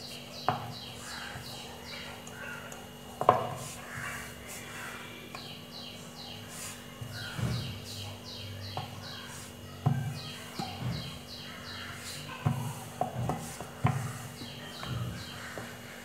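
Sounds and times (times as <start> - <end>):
rolling pin knocking on wooden board: 3.2 - 3.7, 9.8 - 11.2, 12.4 - 15.8
bird chirping: 13.3 - 15.7.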